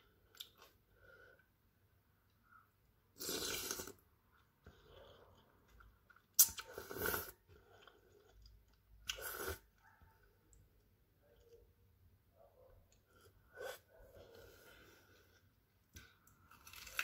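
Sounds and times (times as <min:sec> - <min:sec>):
noodles being slurped: 0:03.2 - 0:04.0
soft chewing: 0:03.7 - 0:11.8.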